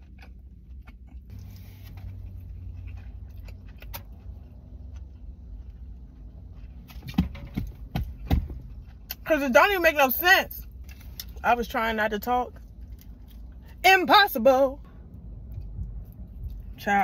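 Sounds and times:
chewing food: 0.0 - 9.2
low car hum: 0.0 - 17.0.

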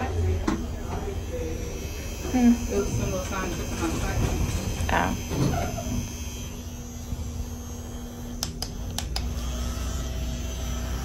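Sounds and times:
elevator humming: 0.0 - 11.0
sharp clicks: 8.4 - 9.3.

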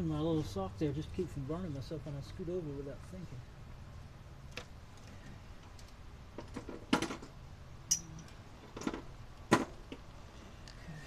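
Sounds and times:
metal tools knocking and clinking: 7.9 - 9.0.

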